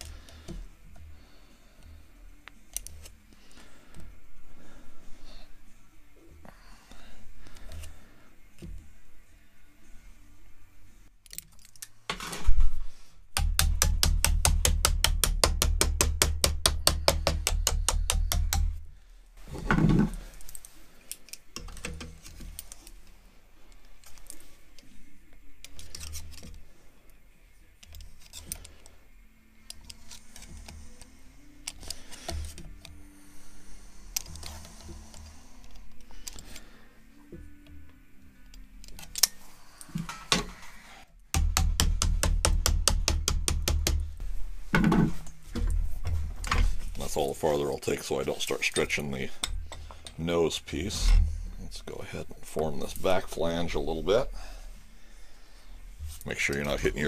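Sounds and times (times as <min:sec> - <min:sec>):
pliers clicking and scraping metal: 0:02.5 - 0:03.2, 0:11.2 - 0:12.4, 0:20.4 - 0:23.1, 0:25.6 - 0:27.2, 0:27.8 - 0:29.0, 0:29.6 - 0:33.0, 0:34.1 - 0:36.6, 0:38.4 - 0:40.7.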